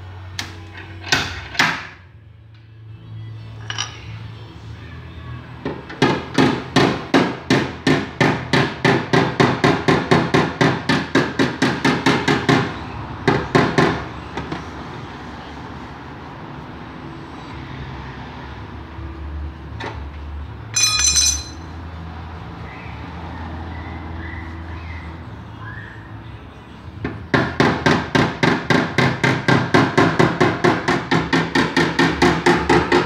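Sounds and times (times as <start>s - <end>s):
ringing metallic clink: 20.7s - 21.7s.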